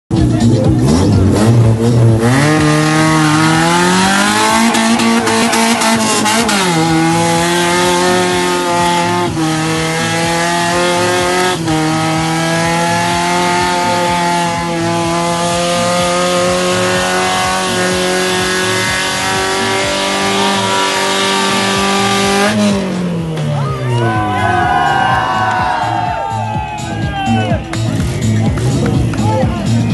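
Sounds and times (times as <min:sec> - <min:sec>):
car engine at high revs: 0:00.3 - 0:23.6.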